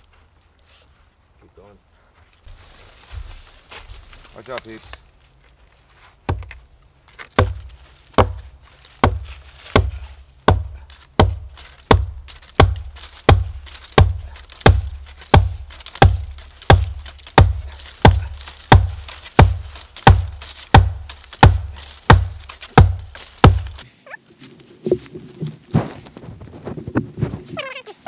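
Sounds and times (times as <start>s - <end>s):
log pounding against log: 6.2s - 6.6s, 7.2s - 23.8s.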